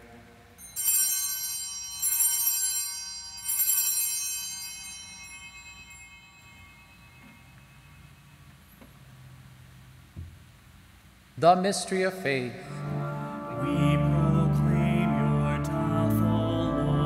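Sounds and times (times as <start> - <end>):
altar bells ringing: 0.6 - 9.2.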